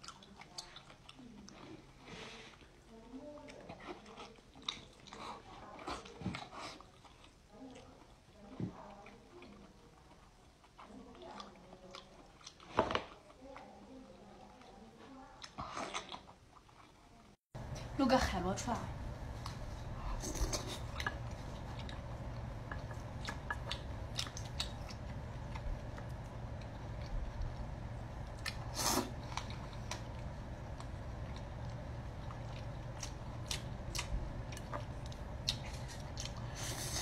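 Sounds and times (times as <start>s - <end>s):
steady low hum: 17.6s - 37.0s.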